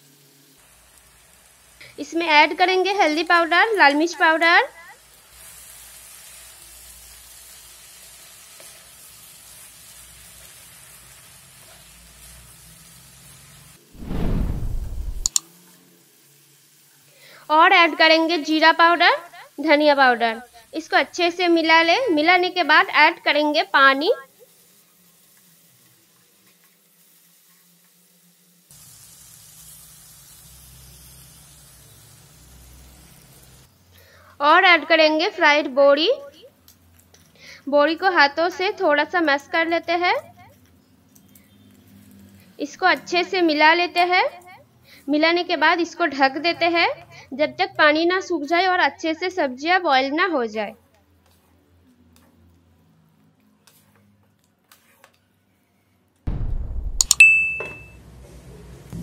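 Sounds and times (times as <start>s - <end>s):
water poured into hot pan hissing: 0.0s - 3.9s, 5.0s - 14.0s, 23.7s - 34.3s
vegetables sizzling in oil: 0.0s - 50.6s.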